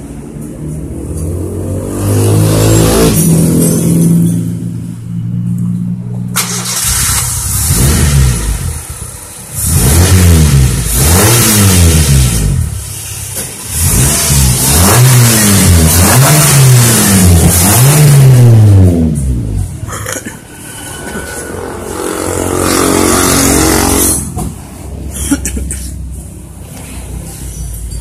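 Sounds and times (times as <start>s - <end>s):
car engine revving: 0.7s - 25.1s
car engine idling: 4.2s - 9.8s.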